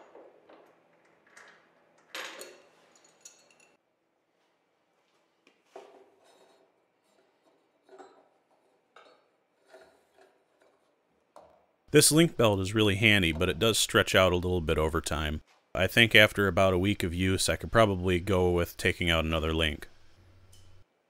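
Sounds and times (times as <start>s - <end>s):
faint metallic clinks and rattles: 1.0s - 3.8s.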